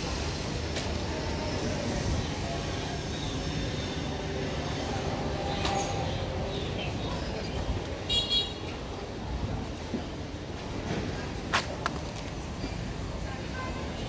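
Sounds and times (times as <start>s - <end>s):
low rumble of vehicles and machinery: 0.0s - 14.0s.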